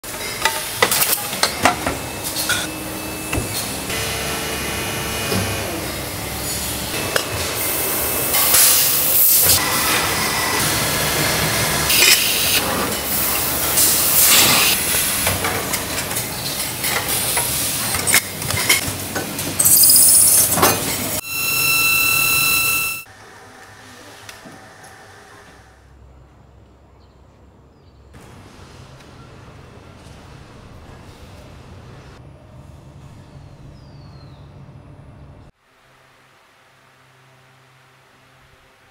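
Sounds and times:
loud machine whine: 0:01.0 - 0:16.0, 0:19.6 - 0:23.8
continuous machinery hiss: 0:34.5 - 0:38.9.

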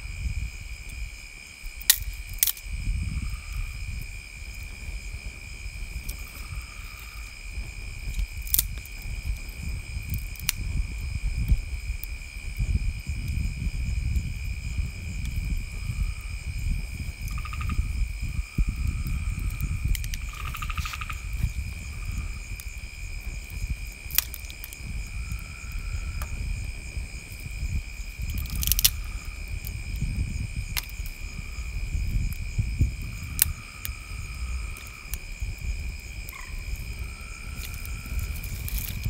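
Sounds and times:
short high insect calls: 0:00.0 - 0:11.2, 0:14.6 - 0:39.0
insects chirring: 0:00.0 - 0:39.0
low rumble: 0:02.6 - 0:39.0.

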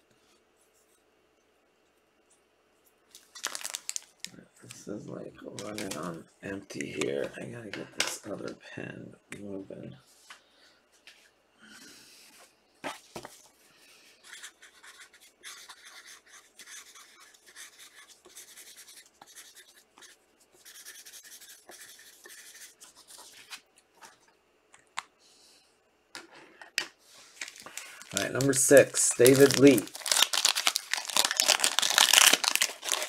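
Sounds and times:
pen scratching on paper: 0:14.2 - 0:23.4.

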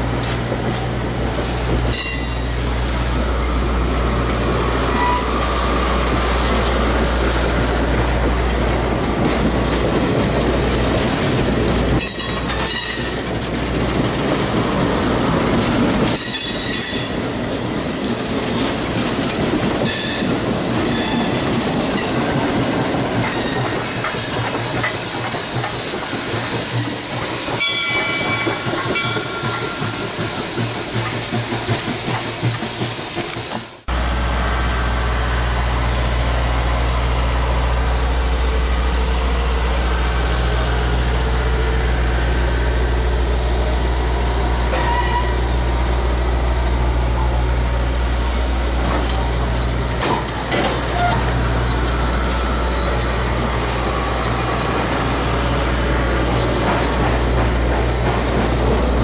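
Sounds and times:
high wheel squeal: 0:01.9 - 0:02.7, 0:04.3 - 0:08.1, 0:16.0 - 0:33.9, 0:44.6 - 0:45.7, 0:48.2 - 0:58.0
train wheels clacking over rail joints: 0:04.2 - 0:33.9, 0:48.3 - 0:59.0.

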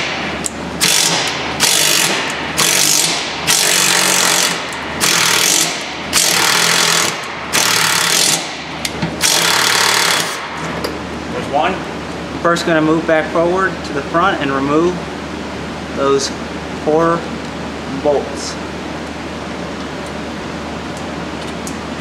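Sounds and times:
impact wrench hammering bolts: 0:00.8 - 0:10.4.

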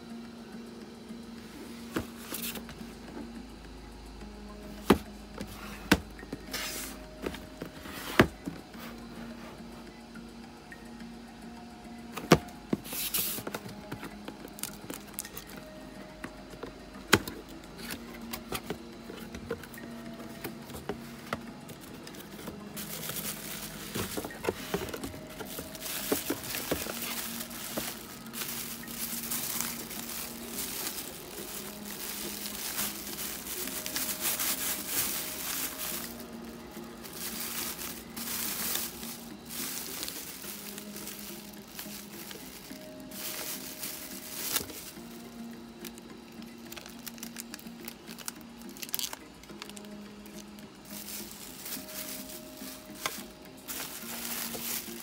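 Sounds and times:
plastic bags crinkling: 0:13.3 - 0:15.7, 0:22.1 - 0:45.2, 0:46.6 - 0:55.0.

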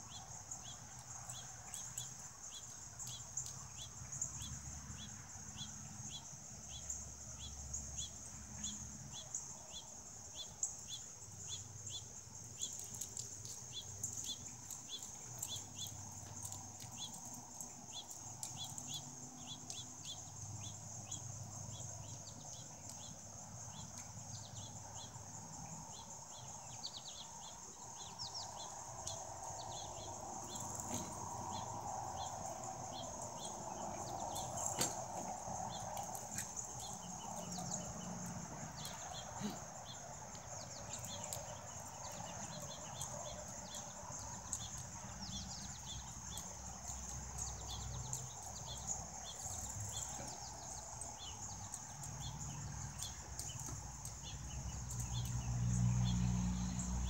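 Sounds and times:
insects buzzing and chirping: 0:00.0 - 0:57.0.

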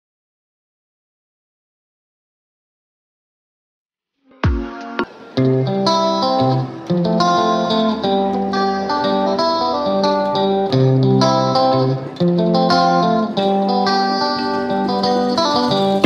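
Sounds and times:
plucked instrumental melody: 0:04.3 - 0:16.0.

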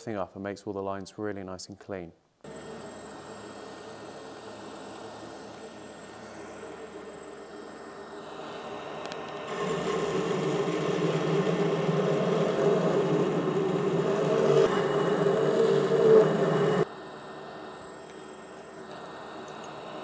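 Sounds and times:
belt grinder grinding steel: 0:09.5 - 0:16.9.

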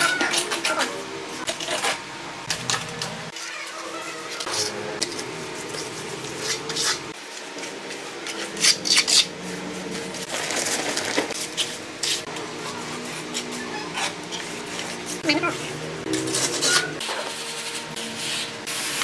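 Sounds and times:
trowel scraping wet concrete: 0:11.3 - 0:19.0.

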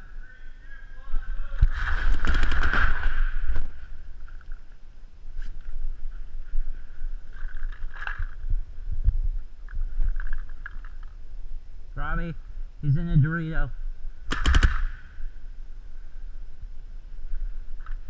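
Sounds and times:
low rumble of camera movement: 0:00.0 - 0:18.0
paintball markers firing: 0:14.3 - 0:15.0.

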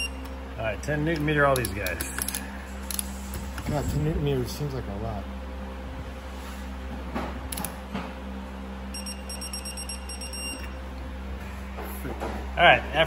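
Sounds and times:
low hum: 0:00.0 - 0:13.0
rapid electronic beeping: 0:08.9 - 0:10.7.

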